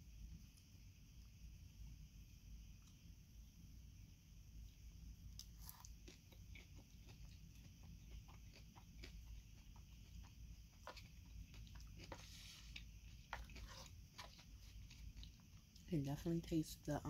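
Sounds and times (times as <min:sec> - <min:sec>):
chewing salad greens: 0:05.3 - 0:15.9
rustling hiss: 0:11.5 - 0:15.5.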